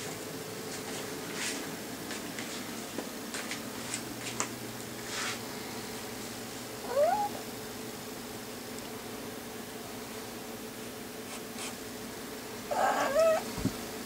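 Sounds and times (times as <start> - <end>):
kitten meowing: 6.8 - 7.4, 12.7 - 13.5.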